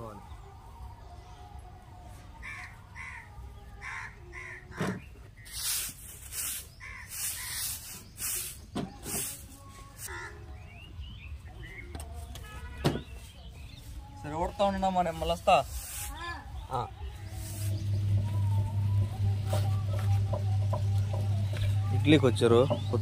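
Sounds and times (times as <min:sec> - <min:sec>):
bird calling: 0:02.3 - 0:09.3, 0:10.0 - 0:13.3, 0:14.5 - 0:23.0
broom sweeping concrete: 0:05.4 - 0:10.1, 0:15.3 - 0:18.8.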